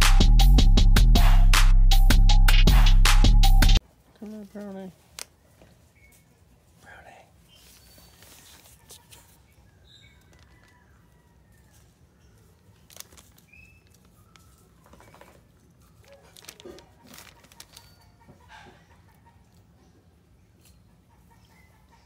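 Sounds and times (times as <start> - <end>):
faint bird chirps: 5.9 - 11.4.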